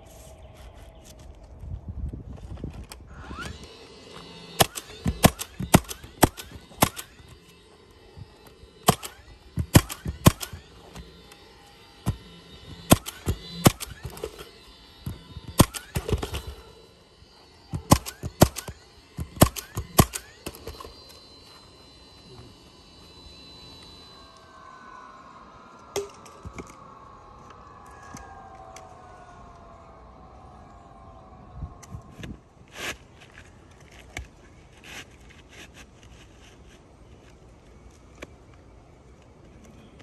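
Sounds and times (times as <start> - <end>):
roofing nailer firing: 4.6 - 7.2, 12.8 - 16.6, 17.8 - 20.9.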